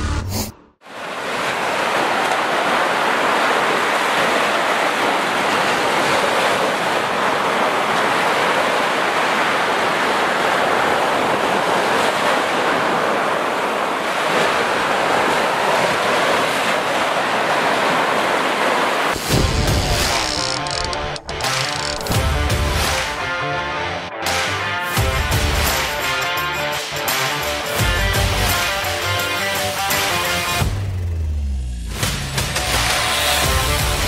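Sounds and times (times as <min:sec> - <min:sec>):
small waves breaking on sand: 0:00.8 - 0:19.3.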